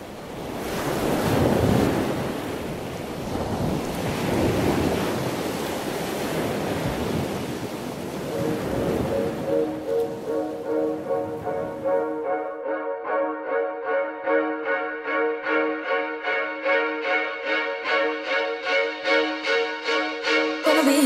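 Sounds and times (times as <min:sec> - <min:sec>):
waves washing onto beach: 0:00.0 - 0:11.9.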